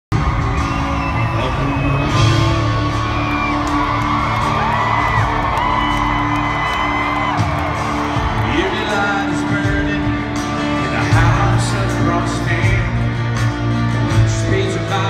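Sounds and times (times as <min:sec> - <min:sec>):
crowd whooping: 0:00.1 - 0:12.1
live band music: 0:00.1 - 0:15.0.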